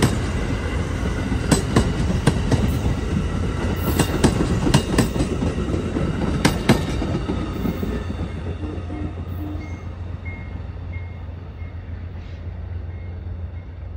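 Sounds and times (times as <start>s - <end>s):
train rumbling on rails: 0.0s - 13.9s
wheels clicking over rail joints: 1.4s - 8.6s.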